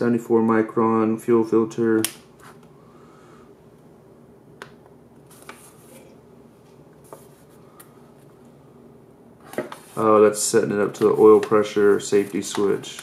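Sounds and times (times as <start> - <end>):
steady low hum: 0.0 - 13.0
paper manual rustling: 9.4 - 13.0.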